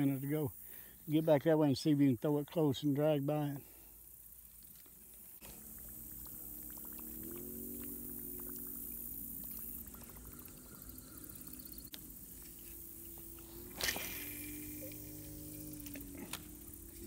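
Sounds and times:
fishing reel whirring: 0:05.5 - 0:17.0.

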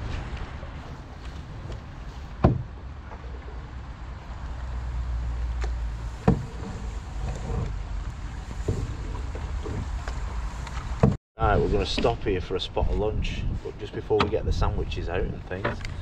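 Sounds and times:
paddle strokes in water: 0:00.0 - 0:11.2
wooden paddle knocking canoe: 0:01.2 - 0:03.8, 0:05.4 - 0:11.2.

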